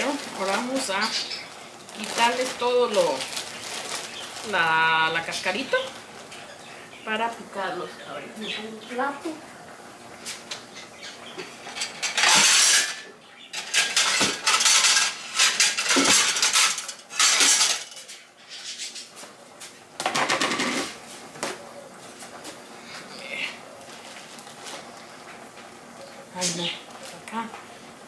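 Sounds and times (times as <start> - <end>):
plates clattering: 11.4 - 18.2, 20.0 - 21.0.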